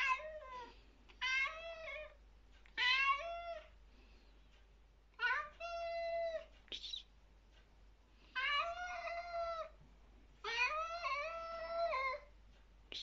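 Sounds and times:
cat yowling: 0.0 - 2.2, 2.8 - 3.7, 5.2 - 6.5, 8.4 - 9.8, 10.4 - 12.3.

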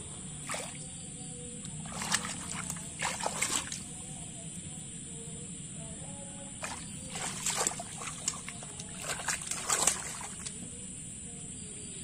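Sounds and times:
hands splashing in muddy water: 0.4 - 0.8, 1.7 - 4.0, 6.6 - 10.7.

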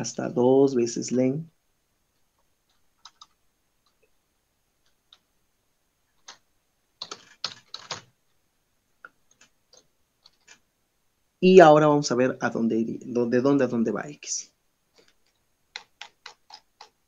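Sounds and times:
keyboard typing: 2.2 - 4.1, 4.8 - 5.3, 6.2 - 6.4, 7.0 - 8.2, 9.0 - 10.7, 14.9 - 17.0.

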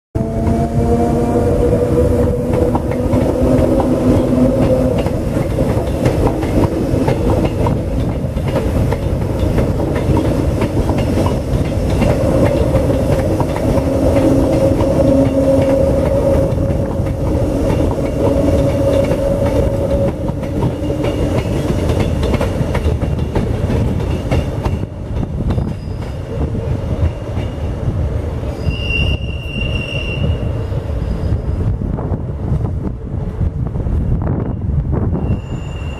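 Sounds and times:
train humming drone: 0.2 - 35.9
train wheels rumbling on rail: 0.2 - 35.9
high squeal: 28.5 - 31.7, 35.2 - 35.9.

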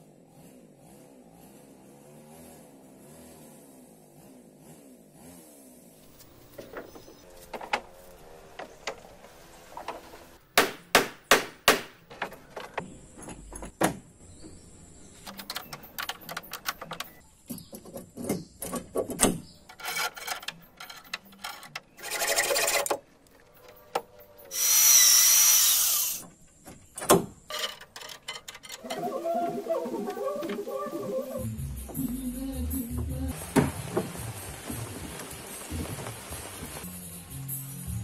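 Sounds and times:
sharp knocks on wood: 10.6 - 12.0
power drill boring into wood: 24.5 - 26.2.

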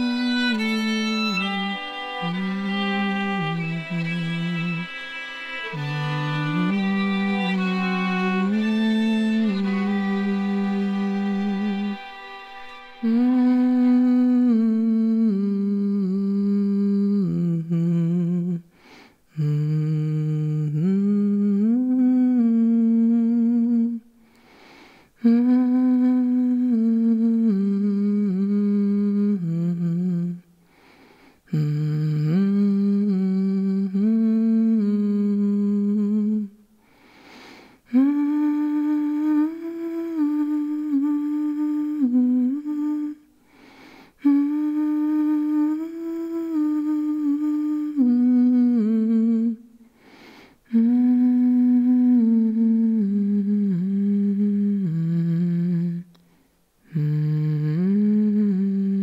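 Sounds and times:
person humming a melody: 0.0 - 24.4, 25.2 - 30.5, 31.4 - 36.6, 37.8 - 43.3, 44.2 - 49.8, 50.6 - 56.2, 56.8 - 59.0
person breathing in: 18.7 - 19.3, 24.2 - 25.2, 30.6 - 31.5, 36.8 - 37.9, 43.4 - 44.2, 49.8 - 50.7.

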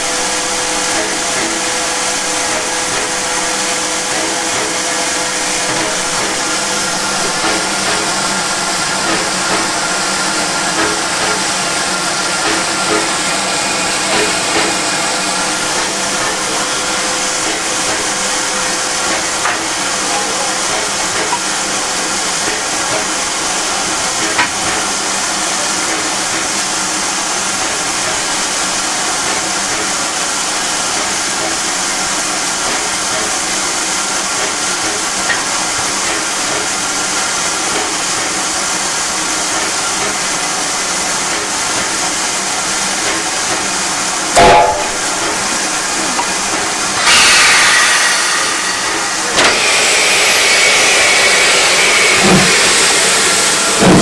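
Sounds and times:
steam hissing: 0.0 - 54.0.

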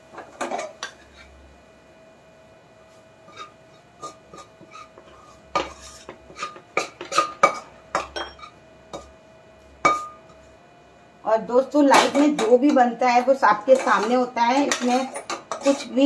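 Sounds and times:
metal spoon scraping a pan: 0.3 - 1.4, 3.2 - 9.2, 13.6 - 16.0.

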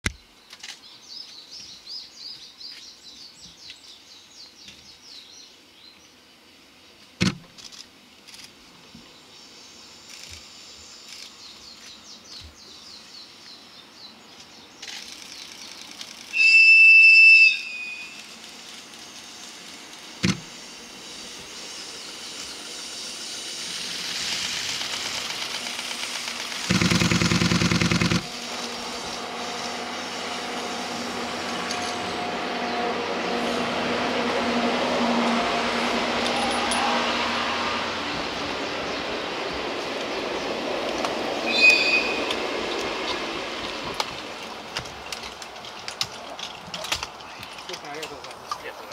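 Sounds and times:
train approaching on rails: 9.1 - 48.9
locomotive whistle blast: 16.3 - 18.4, 41.4 - 42.4
birds chirping: 38.2 - 43.8.

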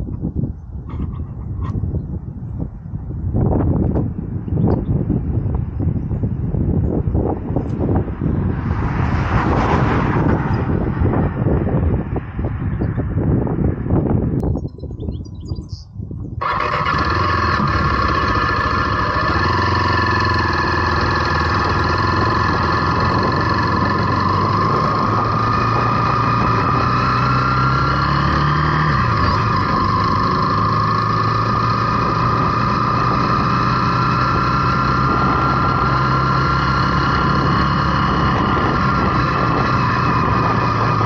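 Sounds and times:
wind rushing over microphone: 0.0 - 41.0
motorcycle engine running: 16.3 - 41.0.

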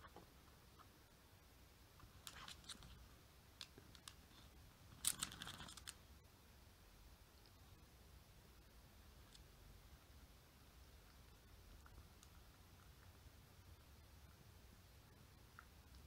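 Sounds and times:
scratches and clicks of pets playing: 2.0 - 6.0.

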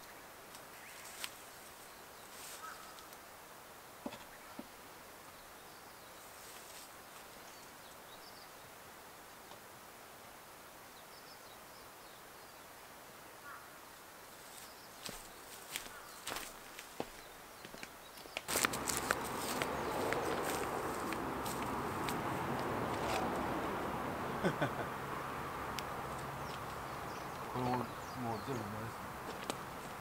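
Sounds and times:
rustling in dry grass: 0.7 - 3.0, 6.2 - 7.6, 14.3 - 17.3, 18.5 - 27.6.

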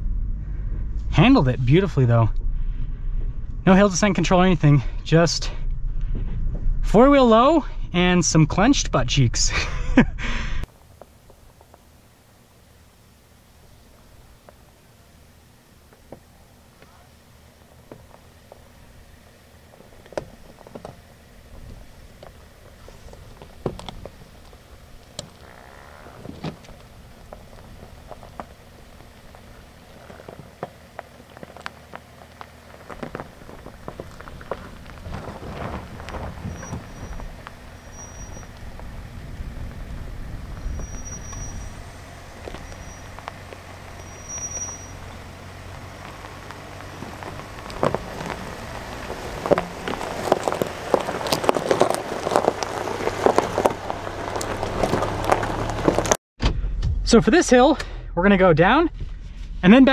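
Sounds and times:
truck engine low rumble: 0.0 - 59.9
tyres crunching gravel: 10.6 - 56.2.

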